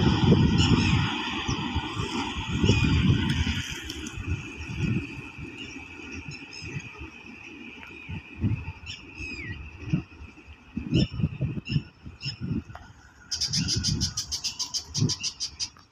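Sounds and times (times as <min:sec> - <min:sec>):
birds chirping: 0:13.2 - 0:15.9.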